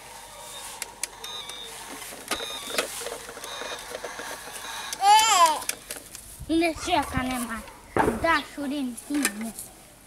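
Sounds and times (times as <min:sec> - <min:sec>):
plastic toy clicks and knocks: 0:02.2 - 0:06.2.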